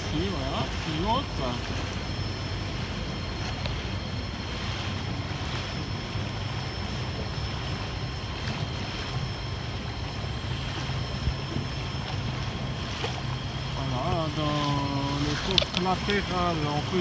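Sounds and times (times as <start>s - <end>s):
outboard motor running: 0.0s - 17.0s
water rushing along hull: 0.0s - 17.0s
wind on microphone: 0.0s - 17.0s.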